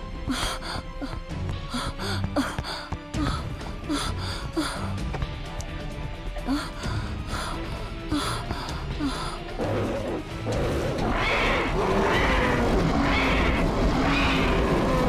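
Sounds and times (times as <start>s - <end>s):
cartoon action music: 9.1s - 15.0s
dinosaur roars and growls: 9.5s - 15.0s.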